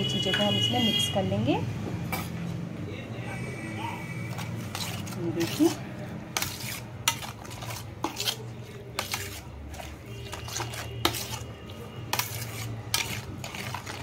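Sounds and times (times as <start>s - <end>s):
steel spoon scraping a metal plate: 4.3s - 14.0s.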